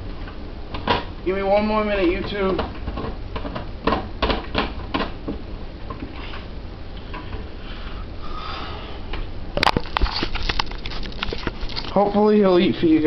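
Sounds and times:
clatter and thumps: 0:02.2 - 0:06.2.

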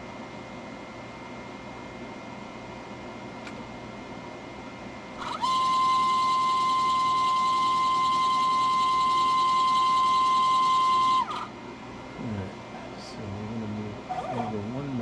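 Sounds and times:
stepper motor whine: 0:05.2 - 0:11.5.

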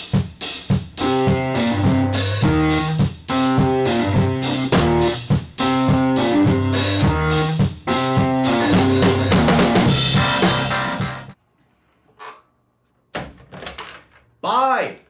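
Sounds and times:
steady drum beat: 0:00.0 - 0:11.4
pitched instrument lines: 0:01.0 - 0:11.4.

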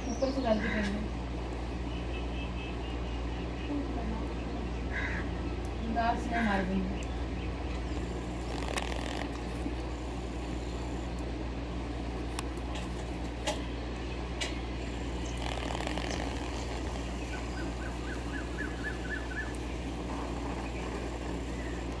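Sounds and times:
steady low hum: 0:00.0 - 0:22.0
sharp clicks: 0:07.0 - 0:09.9, 0:12.2 - 0:19.7.

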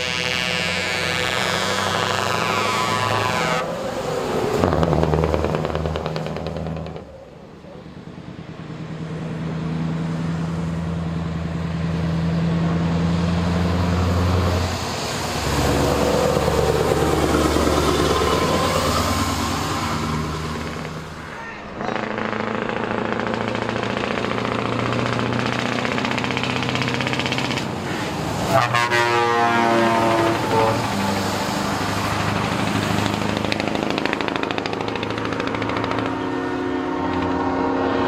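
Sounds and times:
multi-tone horn: 0:00.0 - 0:03.7, 0:28.4 - 0:31.0, 0:35.9 - 0:38.0
trucks driving past: 0:00.0 - 0:38.0.

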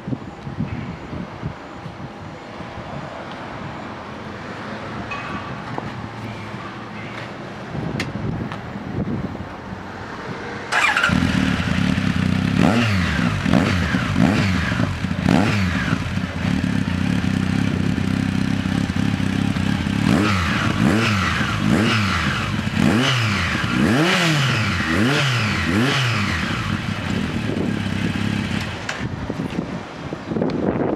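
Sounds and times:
motorcycle engine revving: 0:10.7 - 0:29.2.

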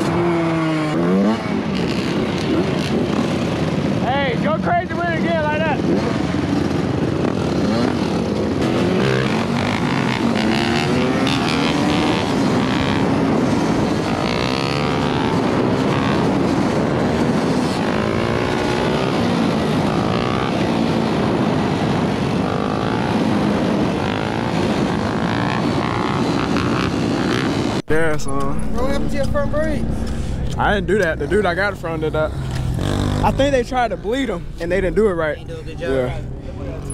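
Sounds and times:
dirt bike engines revving: 0:00.0 - 0:36.9.

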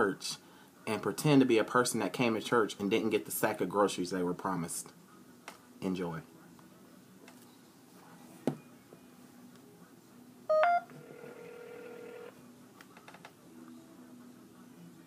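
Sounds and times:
phone ringing tone: 0:10.5 - 0:12.3.

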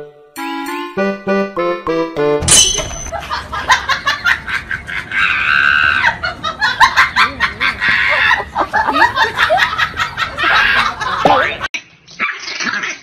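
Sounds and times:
people laughing and giggling: 0:03.1 - 0:11.7
high-pitched squeal of laughter: 0:04.2 - 0:06.4, 0:07.2 - 0:09.1, 0:10.1 - 0:11.2.

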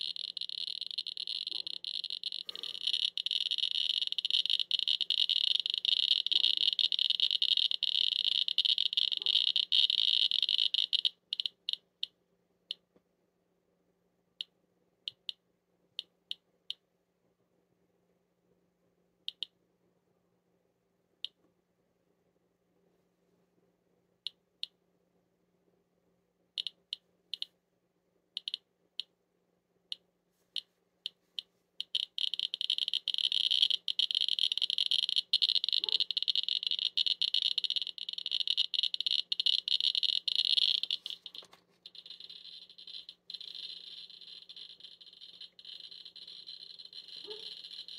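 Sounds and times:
geiger counter clicking: 0:00.0 - 0:12.9, 0:14.4 - 0:16.9, 0:19.3 - 0:19.6, 0:26.5 - 0:27.6, 0:28.4 - 0:29.2, 0:29.9 - 0:47.9.

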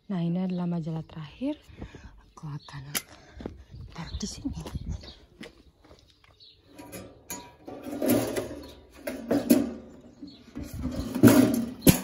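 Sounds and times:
metal mailbox flap rattling: 0:06.8 - 0:12.0.

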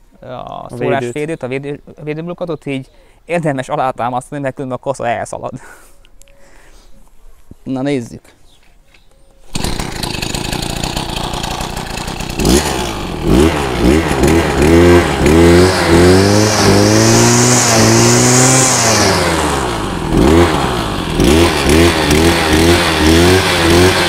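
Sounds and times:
brush cutter engine revving: 0:09.5 - 0:24.0.

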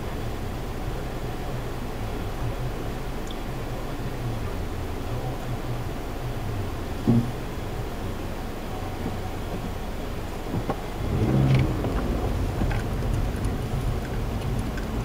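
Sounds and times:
car engine humming and revving: 0:06.9 - 0:07.6, 0:09.0 - 0:15.0.

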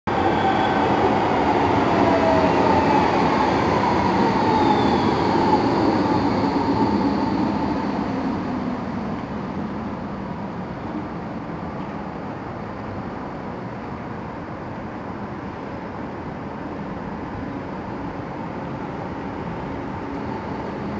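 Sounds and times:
tram wheels on rails: 0:00.1 - 0:20.9.

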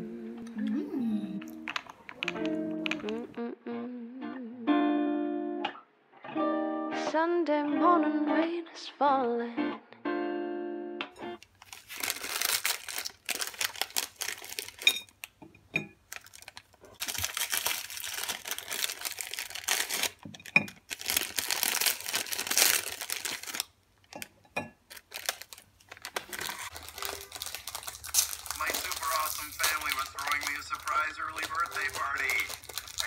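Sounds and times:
plastic wrappers tearing and crinkling: 0:11.4 - 0:15.3, 0:16.1 - 0:24.2, 0:24.9 - 0:33.0.

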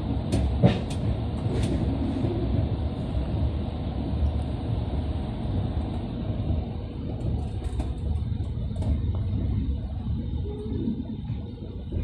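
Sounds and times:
train coach rumbling on track: 0:00.0 - 0:12.0.

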